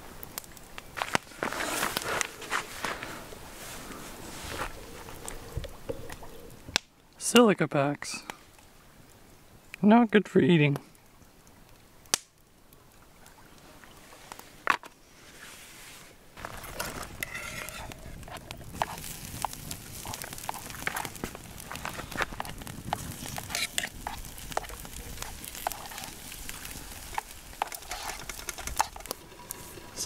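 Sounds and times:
fire hissing: 0.0s - 6.8s, 15.0s - 30.0s
campfire popping and crackling: 0.0s - 15.0s, 16.3s - 30.0s.

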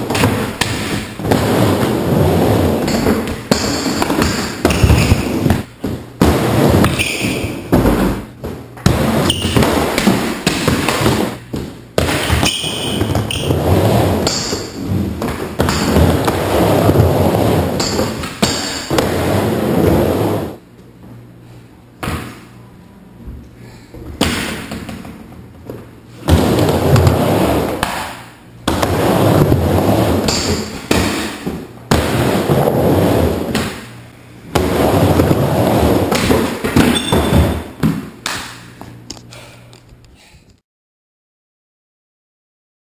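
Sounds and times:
skateboard wheels rumbling on plywood: 0.0s - 3.3s, 4.1s - 12.4s, 13.0s - 18.2s, 18.9s - 20.6s, 25.6s - 27.8s, 28.7s - 30.3s, 31.4s - 33.6s, 34.5s - 36.6s.

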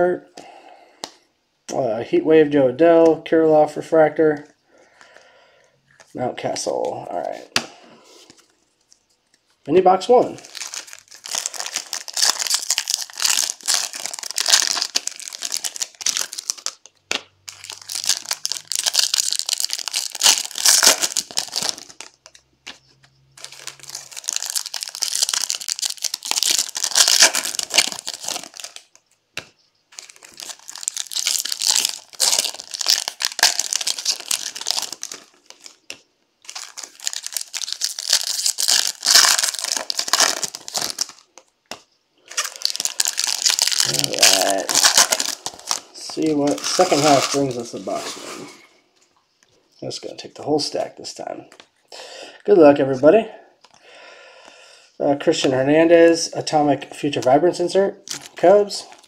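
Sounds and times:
foil wrappers crinkling: 10.0s - 29.2s, 29.9s - 48.8s, 58.0s - 59.0s.

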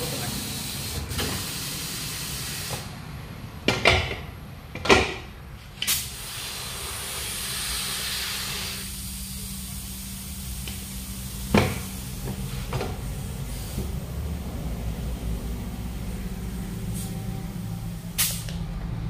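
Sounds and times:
compressed air hissing: 0.0s - 2.9s, 5.8s - 18.6s
short sharp air bursts: 0.0s - 2.9s, 5.8s - 13.9s, 17.9s - 18.6s.

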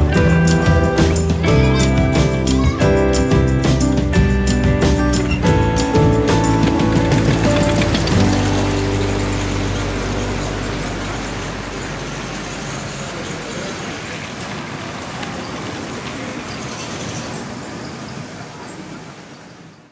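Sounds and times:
music: 0.0s - 12.9s
steady rushing noise: 3.7s - 16.5s.

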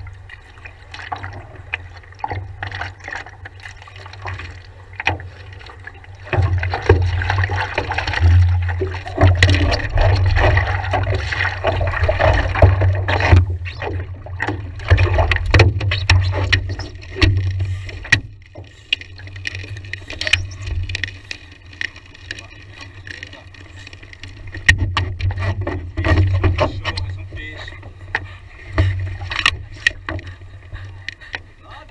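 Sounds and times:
water splashing against paddleboard: 0.0s - 31.9s
low rumble: 5.9s - 15.8s.

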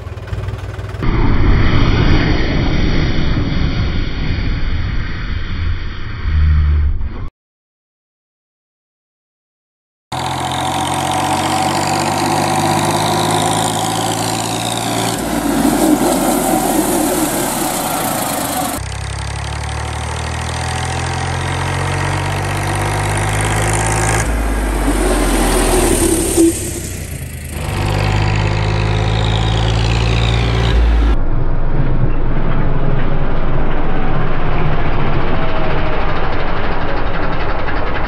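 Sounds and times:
tractor diesel engine running: 0.0s - 1.3s, 10.1s - 31.2s, 32.4s - 38.0s.

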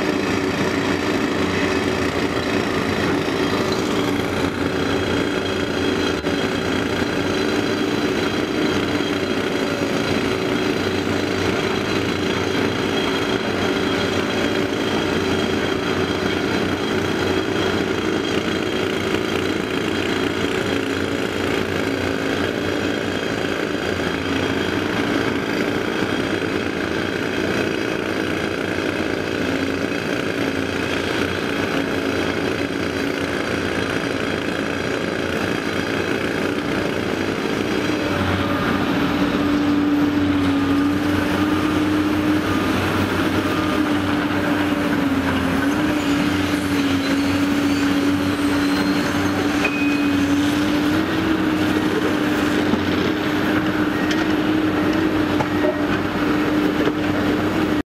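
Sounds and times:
excavator diesel engine: 0.0s - 57.8s.

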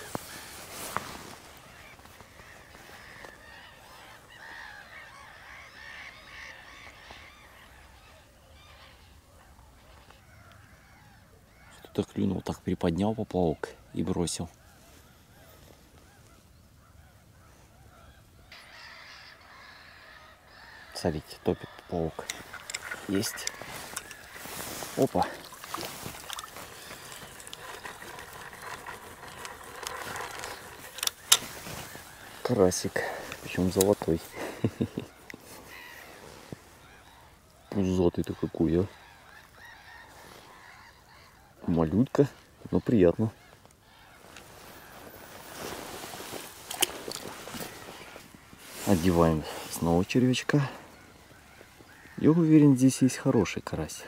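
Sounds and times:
chorus of animal calls: 0.0s - 12.0s, 14.6s - 53.6s
faint reel clicks: 25.7s - 31.7s
fishing reel being cranked: 26.1s - 31.6s.

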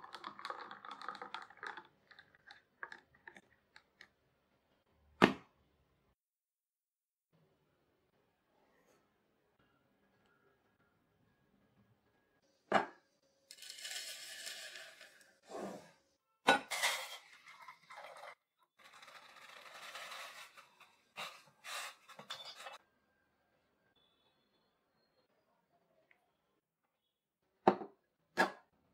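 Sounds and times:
water pouring into metal pot: 0.0s - 3.4s, 13.5s - 15.4s, 16.7s - 22.0s.

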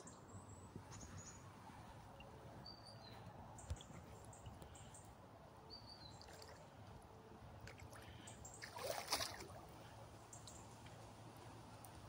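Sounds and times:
boots sloshing through water: 7.6s - 9.8s.

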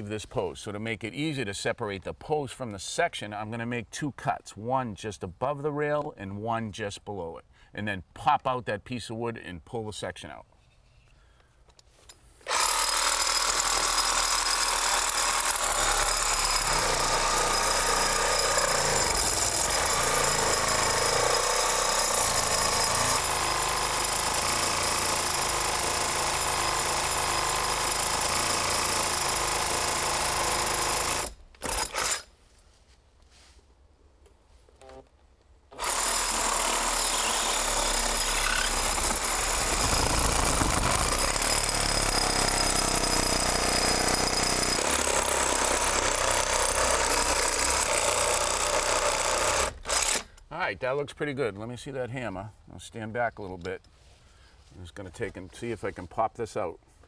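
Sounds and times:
reciprocating saw cutting wood: 12.4s - 32.3s, 35.7s - 50.3s.

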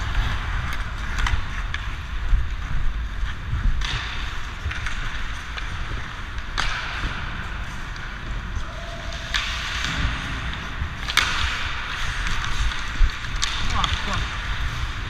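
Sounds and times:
ice skate blades scraping: 0.0s - 15.0s
low rumble: 0.0s - 15.0s.

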